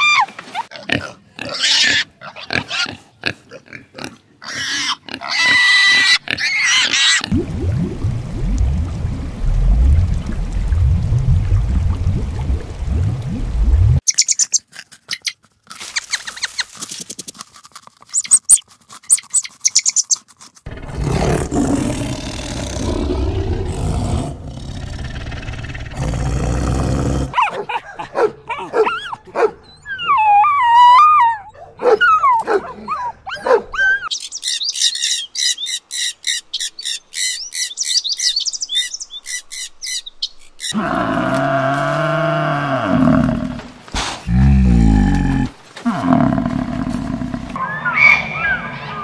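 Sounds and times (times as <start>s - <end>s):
dogs whining and growling: 27.2s - 34.1s.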